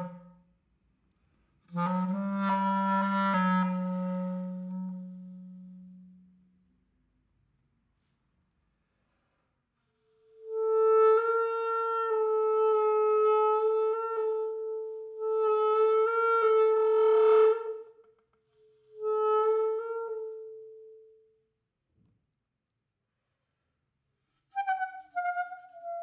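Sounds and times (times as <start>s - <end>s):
clarinet holding long note: 0.0s - 0.4s, 1.7s - 6.5s, 10.3s - 17.9s, 18.5s - 21.2s.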